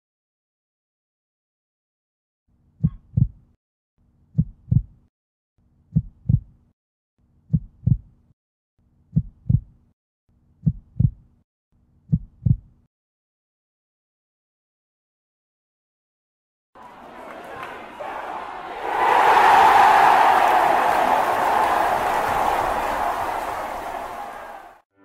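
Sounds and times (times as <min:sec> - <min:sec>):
heartbeat thumps: 0:02.8 - 0:03.4, 0:04.4 - 0:05.0, 0:05.9 - 0:06.5, 0:07.5 - 0:08.1, 0:09.1 - 0:09.8, 0:10.6 - 0:11.2, 0:12.1 - 0:12.7.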